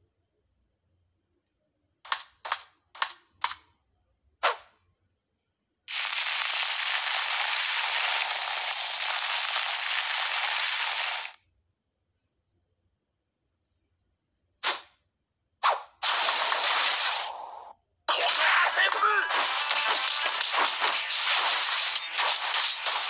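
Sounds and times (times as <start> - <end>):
sharp snaps: 2.0 - 3.7, 14.6 - 15.0
sand streaming hiss: 5.9 - 11.4.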